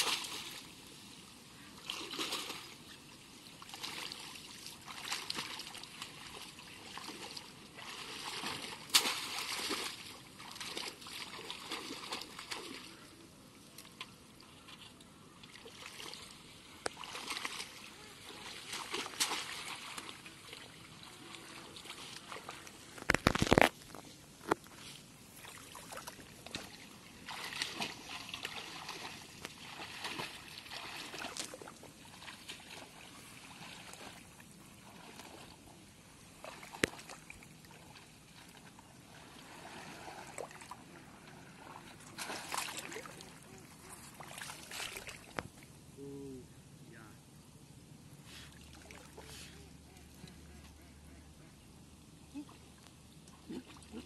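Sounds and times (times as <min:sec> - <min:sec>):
footsteps wading through water: 0:00.0 - 0:01.0, 0:01.7 - 0:13.1, 0:13.7 - 0:45.6.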